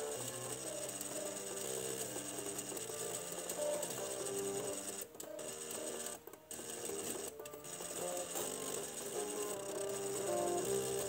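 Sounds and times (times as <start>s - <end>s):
floppy drive motors buzzing melody: 0.0s - 11.0s.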